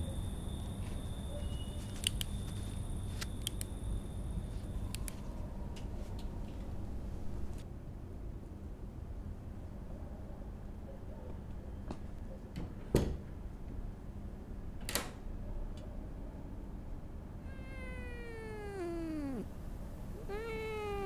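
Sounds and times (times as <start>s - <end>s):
cat yowling: 17.4s - 21.0s.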